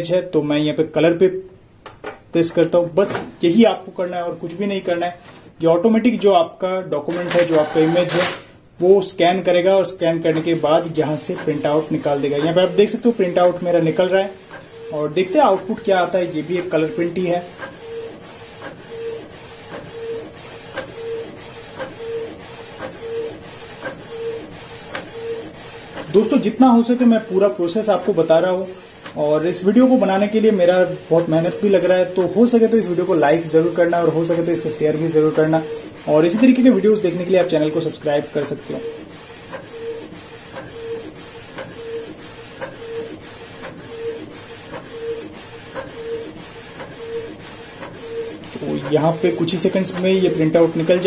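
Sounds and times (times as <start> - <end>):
inkjet printer clicking and humming: 7.1 - 8.5, 9.4 - 51.0
light printer clicks: 17.6 - 17.8, 20.7 - 21.0, 21.7 - 22.0, 41.5 - 41.8, 42.6 - 42.9.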